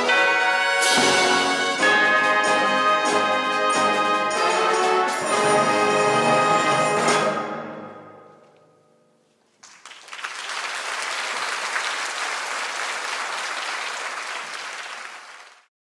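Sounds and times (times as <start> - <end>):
audience applause: 9.6 - 15.7.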